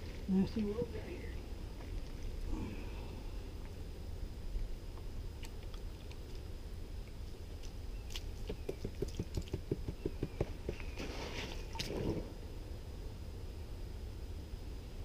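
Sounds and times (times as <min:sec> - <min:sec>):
low rumble: 0:00.0 - 0:08.0.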